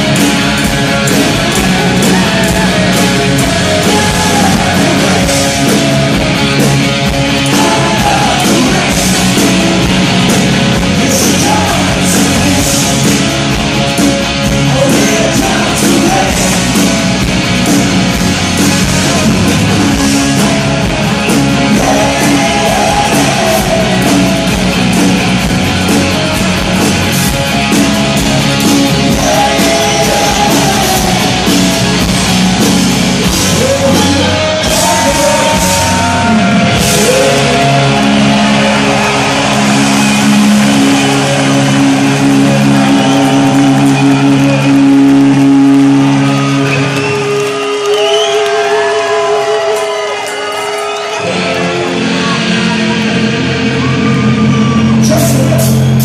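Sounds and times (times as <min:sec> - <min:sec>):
drums: 0:00.0 - 0:56.0
electric guitar: 0:00.0 - 0:56.0
man singing: 0:01.6 - 0:06.0, 0:07.3 - 0:09.6, 0:10.9 - 0:13.4, 0:14.6 - 0:16.9, 0:21.6 - 0:24.3, 0:29.0 - 0:31.7, 0:33.2 - 0:38.3.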